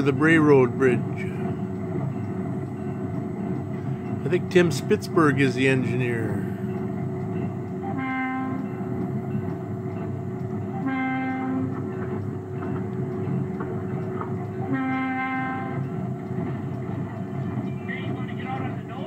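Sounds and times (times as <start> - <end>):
locomotive rolling: 0.0 - 19.0
locomotive air horn blasts: 7.8 - 8.7, 10.7 - 11.8, 14.6 - 15.8.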